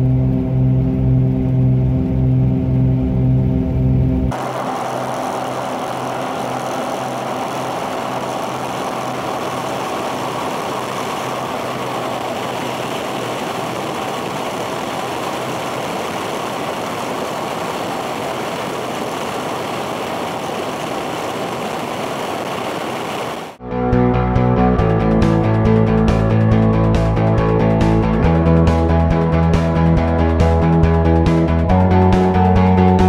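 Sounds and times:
propeller plane engines droning: 0.0s - 33.0s
rushing airflow: 4.3s - 23.6s.

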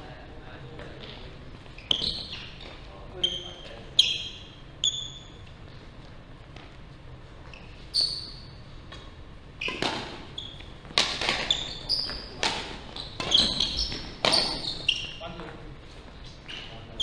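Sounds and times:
rackets hitting shuttlecock: 8.0s - 15.2s.

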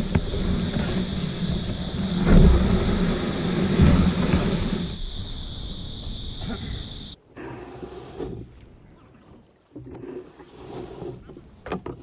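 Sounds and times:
heavy bumps: 0.0s - 7.2s
low rumbling on microphone: 0.0s - 7.2s
high drone of insects: 0.0s - 10.0s.

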